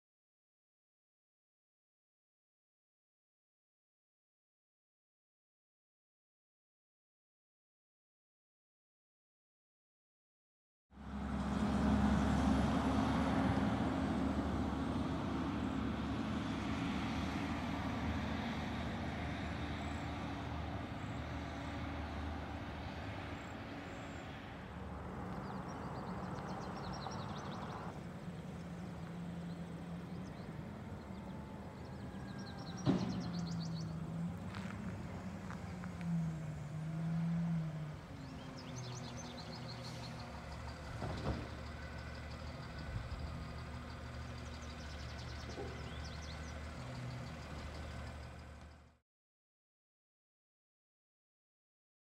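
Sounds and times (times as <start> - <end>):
diesel truck engine running: 11.0 - 49.0.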